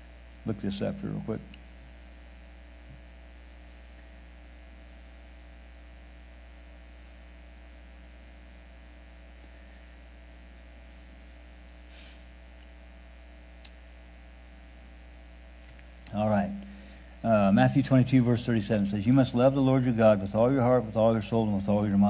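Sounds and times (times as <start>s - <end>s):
electrical mains hum: 0.0s - 22.0s
small click: 13.6s - 13.8s.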